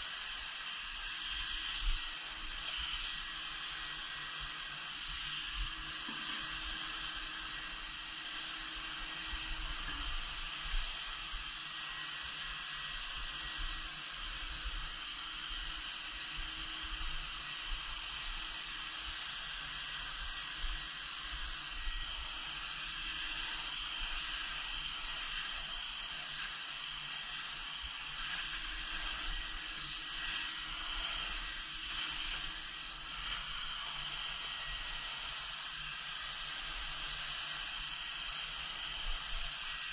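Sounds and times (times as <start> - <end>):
spray gun hissing: 21.8 - 35.4.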